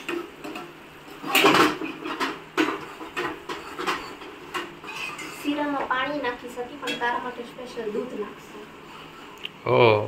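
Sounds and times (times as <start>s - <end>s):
utensil scraping pan: 0.0s - 7.3s
metal utensils clattering on pan: 0.0s - 7.4s.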